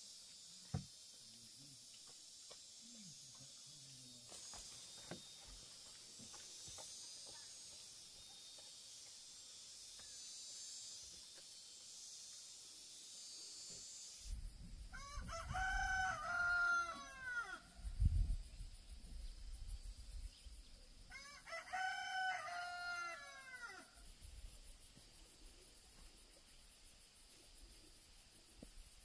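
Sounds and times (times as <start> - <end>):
thump: 0.7 - 0.9
rooster crowing: 14.9 - 17.7, 21.1 - 24.0.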